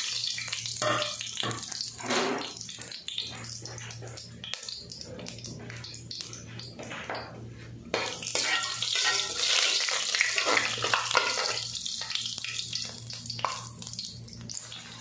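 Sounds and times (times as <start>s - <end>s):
spices sizzling in hot oil: 0.0s - 7.0s, 7.9s - 15.0s.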